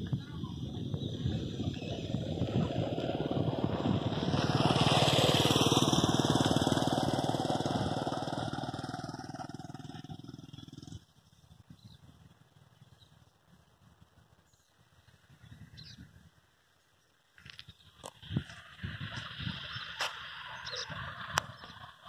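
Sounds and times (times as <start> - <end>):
vehicle engine passing by: 0.8 - 11.4, 18.2 - 22.0.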